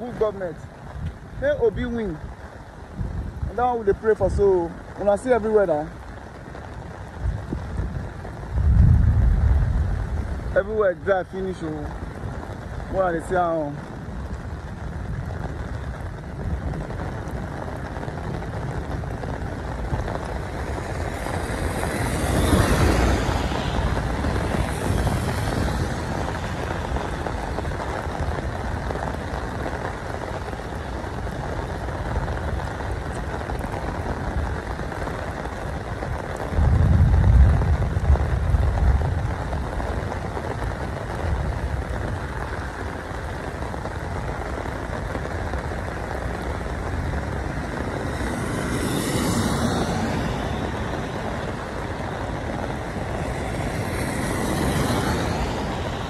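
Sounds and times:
steady rain: 0.0s - 56.0s
tyres hissing on wet road: 0.0s - 56.0s
low rumble: 7.2s - 10.6s, 36.4s - 39.9s.

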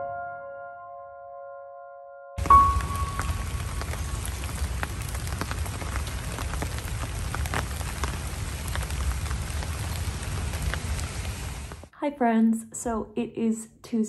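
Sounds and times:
heavy rain pouring: 2.4s - 11.9s.

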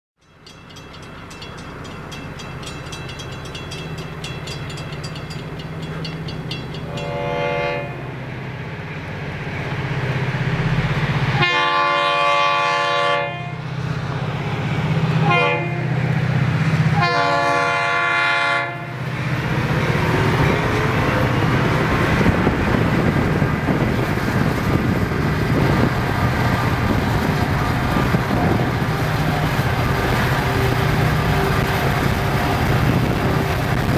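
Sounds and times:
crossing bells ringing: 0.2s - 8.2s
train rumbling past: 0.2s - 33.9s
locomotive horn blasts: 6.9s - 8.2s, 11.3s - 13.6s, 15.2s - 16.0s, 16.9s - 19.1s.

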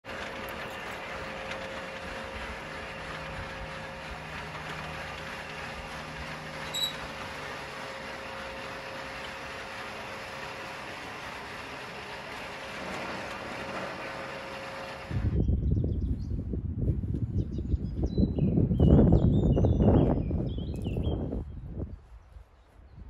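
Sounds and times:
garage door motor humming: 0.0s - 15.5s.

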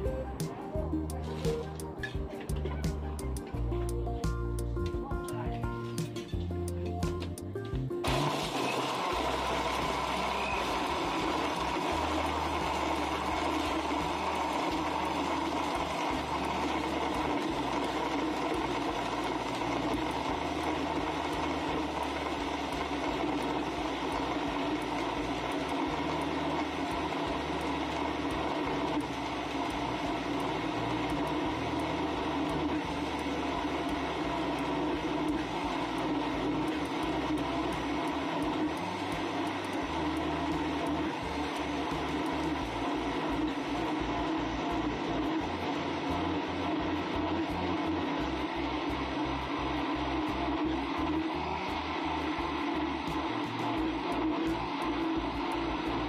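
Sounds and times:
blender crushing ice: 8.0s - 56.0s.

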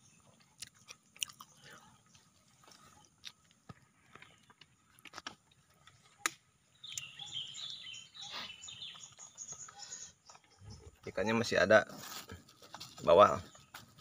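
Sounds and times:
bird chirping: 0.0s - 4.5s, 5.7s - 11.6s, 12.8s - 14.0s
person chewing food: 0.2s - 6.2s.

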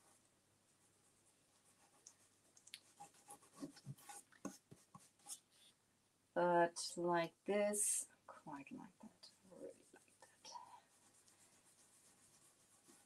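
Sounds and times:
brush scratching metal surface: 10.0s - 13.0s.

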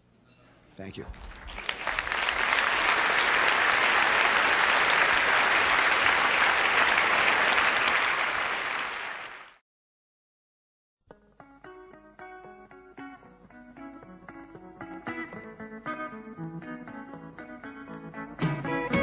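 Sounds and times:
large audience applauding: 1.0s - 9.6s.

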